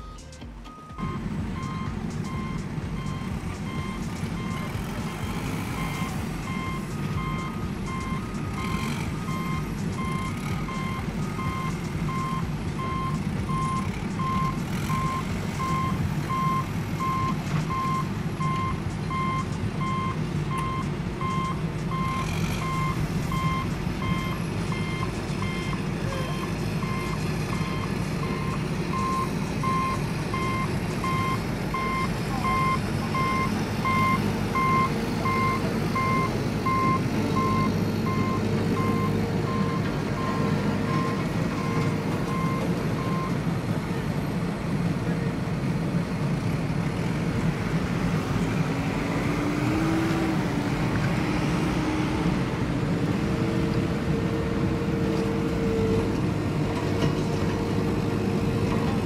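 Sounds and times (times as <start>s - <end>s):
reversing alarm beeping: 0.0s - 43.4s
engine running low: 0.0s - 59.0s.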